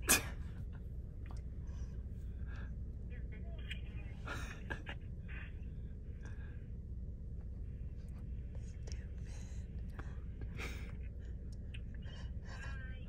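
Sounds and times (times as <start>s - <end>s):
steady low rumble: 0.0s - 13.0s
faint whispered voices: 3.0s - 5.9s, 11.7s - 13.0s.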